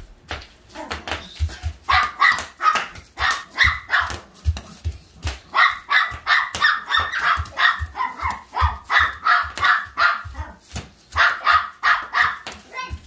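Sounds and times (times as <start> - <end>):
dull thumps of feet: 0.0 - 13.0
dog barking: 1.9 - 4.3, 5.5 - 10.6, 11.2 - 12.9.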